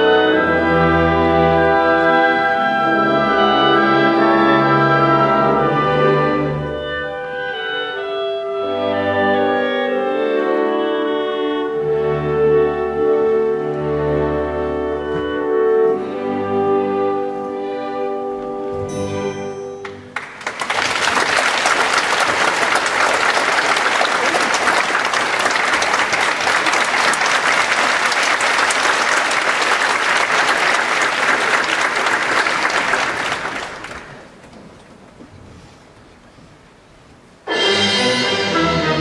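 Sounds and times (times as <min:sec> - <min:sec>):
audience applauding: 0:19.8 - 0:34.5.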